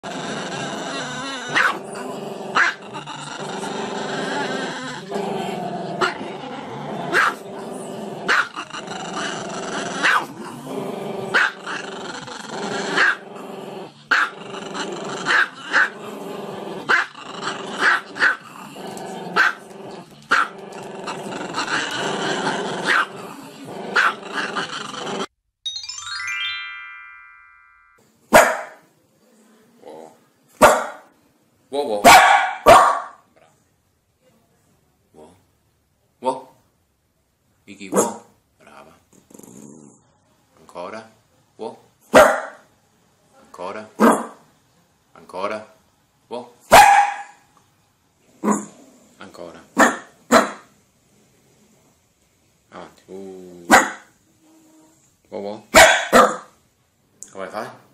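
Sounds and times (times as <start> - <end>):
small dog barking: 1.5 - 1.8, 2.6 - 2.8, 7.1 - 7.4, 8.3 - 8.5, 10.0 - 10.3, 11.3 - 11.6, 14.1 - 14.3, 17.8 - 18.4, 19.4 - 19.6, 22.9 - 23.1, 24.0 - 24.2, 28.3 - 28.8, 30.6 - 31.1, 32.0 - 33.2, 37.9 - 38.3, 42.1 - 42.6, 44.0 - 44.4, 46.7 - 47.5, 48.4 - 48.7, 49.8 - 50.7, 53.7 - 54.1, 55.7 - 56.6
music: 25.6 - 28.0.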